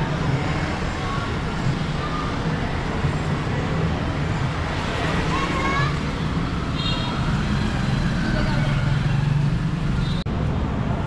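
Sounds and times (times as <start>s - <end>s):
motorcycle and car engines: 2.6s - 11.0s.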